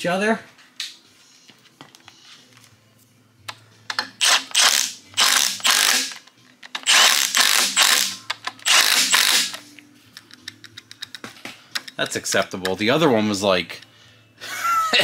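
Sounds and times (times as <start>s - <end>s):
impact wrench hammering: 3.9s - 6.2s, 6.8s - 9.6s.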